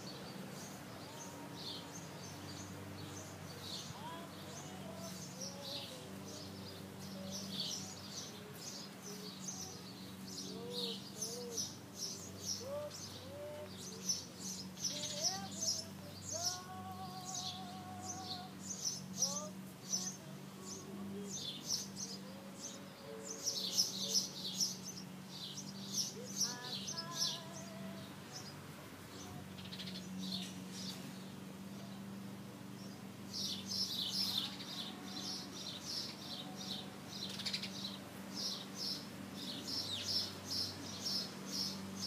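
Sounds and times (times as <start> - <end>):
rising wavering bird calls: 0.0 - 32.1, 32.8 - 42.0
small birds chirping: 0.0 - 42.0
steady low hum: 0.0 - 42.0.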